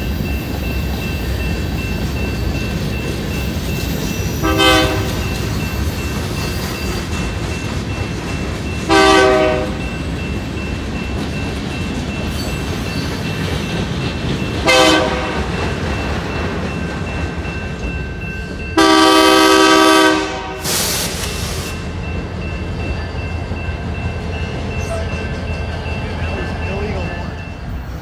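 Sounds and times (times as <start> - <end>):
train rumbling past: 0.0 - 28.0
locomotive air horn blasts: 4.4 - 5.2, 8.9 - 9.8, 14.6 - 15.4, 18.8 - 21.6
brief air hiss: 20.6 - 21.8.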